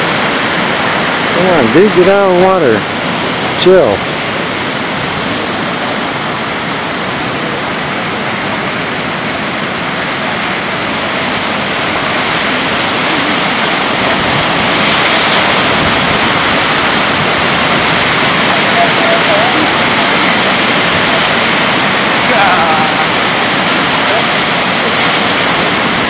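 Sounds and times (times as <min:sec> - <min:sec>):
ocean surf breaking: 0:00.0 - 0:26.0.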